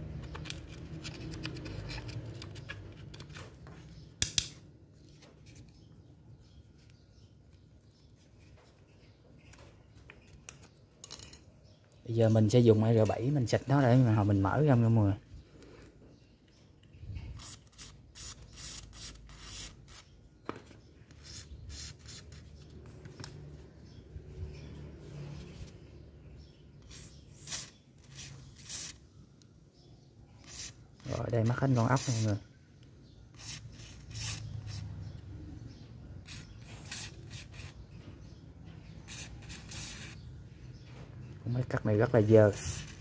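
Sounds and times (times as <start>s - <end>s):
sharp click: 4.2s - 4.6s.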